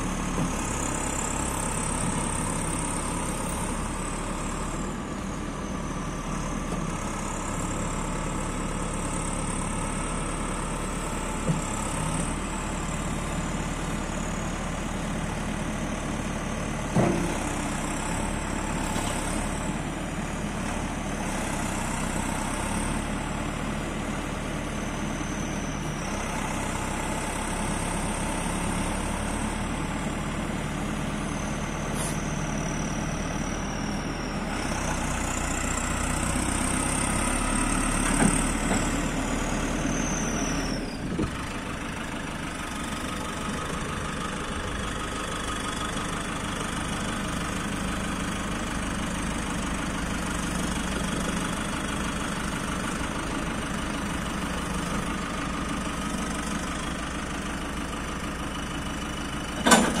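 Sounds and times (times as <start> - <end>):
diesel engine idling: 0.0 - 60.0.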